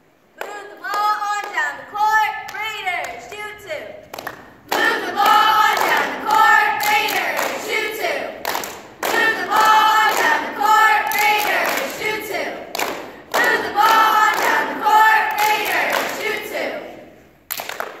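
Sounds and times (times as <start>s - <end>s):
girls singing in unison: 0.4s - 17.4s
hand claps: 4.0s - 16.4s, 17.5s - 18.0s.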